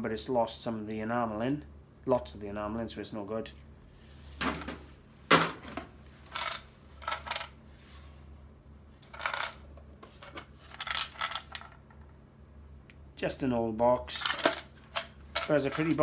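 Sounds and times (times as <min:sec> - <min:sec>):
metal and wooden objects clinking: 0:14.2 - 0:16.0.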